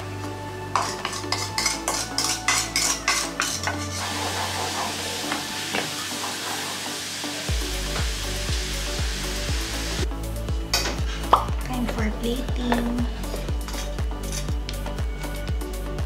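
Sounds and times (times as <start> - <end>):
wooden spoon scraping saucepan: 0.8 - 6.8
sauce sizzling: 0.8 - 10.1.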